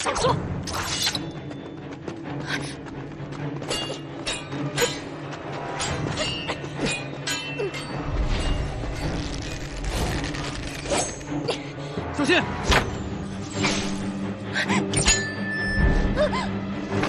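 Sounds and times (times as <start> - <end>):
metallic blade clashes: 5.8 - 8.6.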